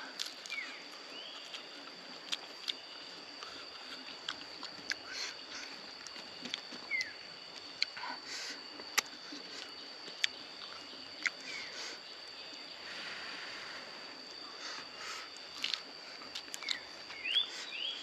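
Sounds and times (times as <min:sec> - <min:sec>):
high-pitched insect drone: 0:00.0 - 0:18.0
man chewing with mouth clicks: 0:00.2 - 0:11.8, 0:15.2 - 0:17.4.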